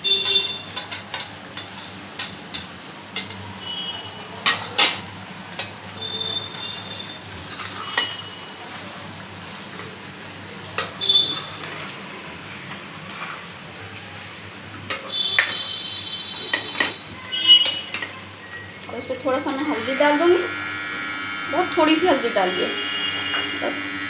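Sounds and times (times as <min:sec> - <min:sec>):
spoon scraping metal pan: 0:07.5 - 0:08.3.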